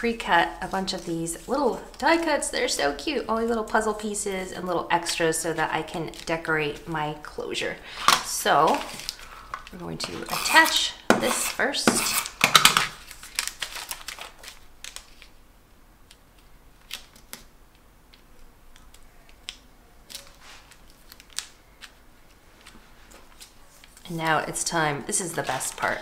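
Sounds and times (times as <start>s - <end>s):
paper scraping rustle: 0.5s - 4.2s, 7.9s - 15.3s, 20.1s - 21.4s
paper rustling: 0.6s - 7.2s, 7.8s - 15.4s, 18.8s - 26.0s.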